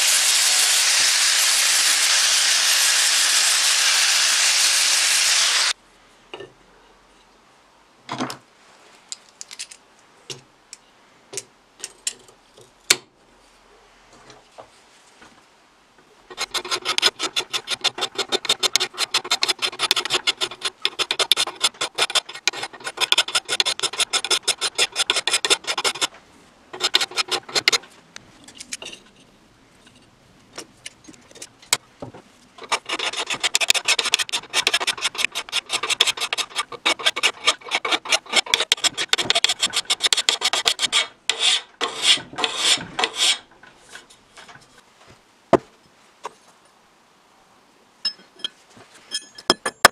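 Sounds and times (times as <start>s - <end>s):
hand file scraping metal: 16.3s - 27.8s, 32.6s - 44.0s.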